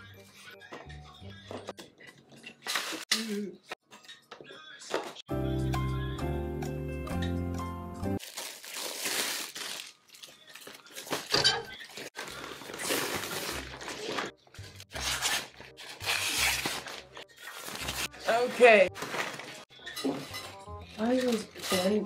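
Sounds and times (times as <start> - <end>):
background music: 0.0 - 2.8, 5.3 - 22.0
plastic and fabric crinkling: 8.2 - 19.7.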